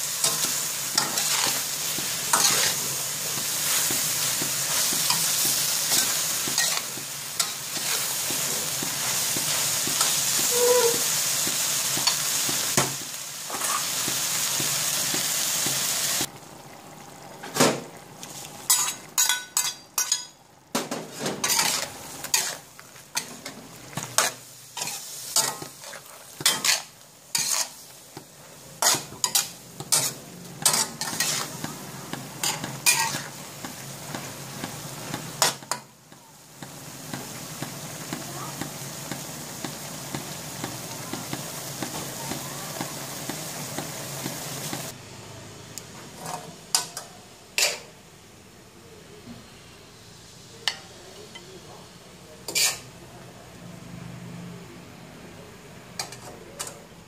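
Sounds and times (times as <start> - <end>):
vegetables sizzling in a wok: 0.0 - 57.0
metal ladle scraping a wok: 0.2 - 2.8, 3.6 - 8.3, 9.0 - 11.2, 18.6 - 20.4, 21.2 - 27.9, 28.8 - 31.6, 52.5 - 52.9.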